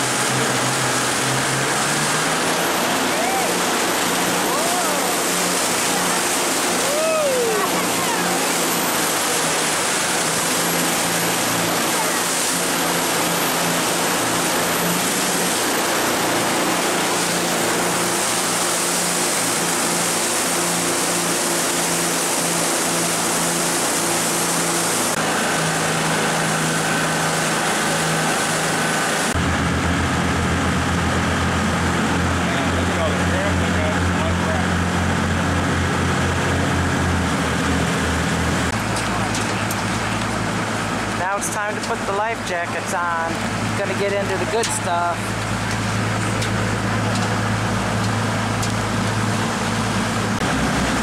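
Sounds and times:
boat engine hum: 0:00.0 - 0:51.0
whitewater rushing: 0:00.0 - 0:51.0.

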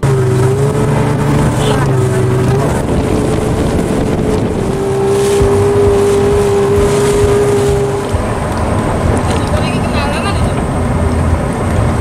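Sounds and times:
motorboat engine droning: 0:00.0 - 0:12.0.

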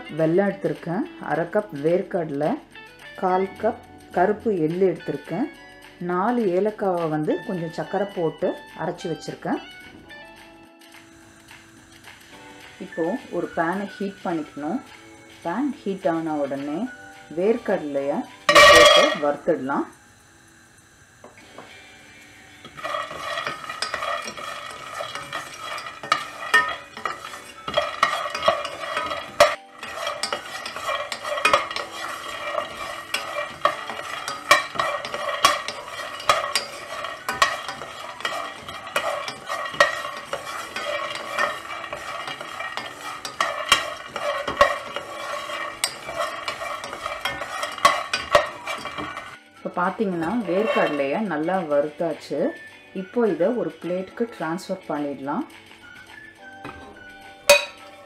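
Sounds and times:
nuts rattling in metal pot: 0:18.5 - 0:19.4, 0:22.6 - 0:51.7
pot ringing faintly: 0:57.5 - 0:58.0.

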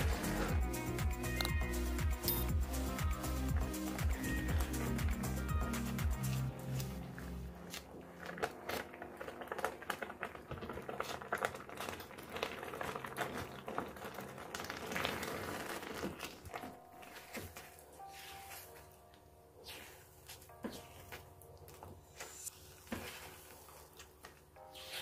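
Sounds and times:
spatula scraping thick mixture: 0:00.0 - 0:00.7, 0:05.8 - 0:18.9, 0:19.6 - 0:25.0.

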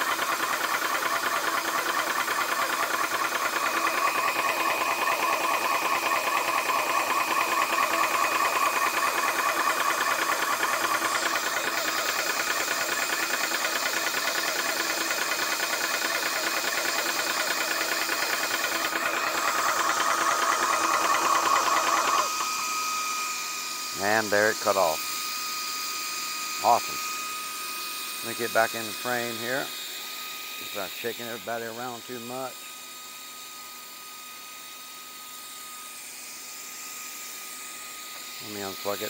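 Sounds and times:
air compressor pumping: 0:00.0 - 0:39.0.

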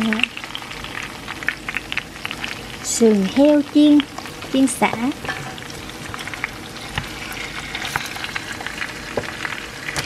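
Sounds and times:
meat sizzling in oil: 0:00.0 - 0:10.0
oil crackling and popping: 0:00.0 - 0:10.0.

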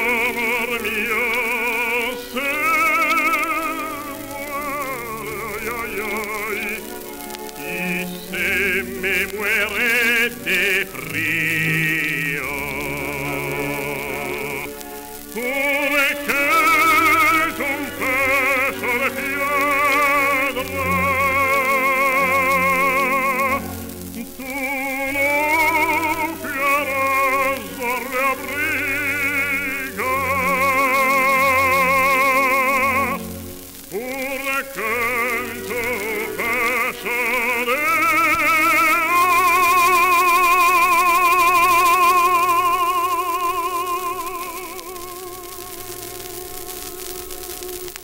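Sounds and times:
baritone voice singing serenade: 0:00.0 - 0:48.0
record surface hiss: 0:00.0 - 0:48.0.

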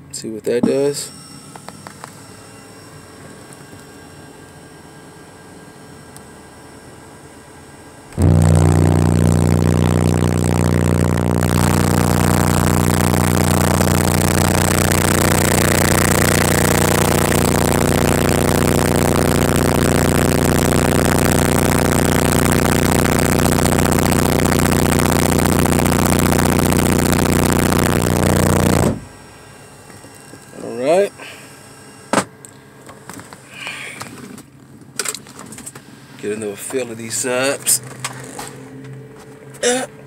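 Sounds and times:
subwoofer low test tone drone: 0:08.1 - 0:29.2.

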